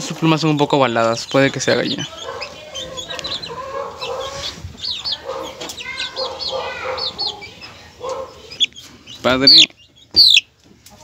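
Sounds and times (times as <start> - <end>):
chickens clucking: 0.0 - 11.0
chicks peeping: 0.0 - 11.0.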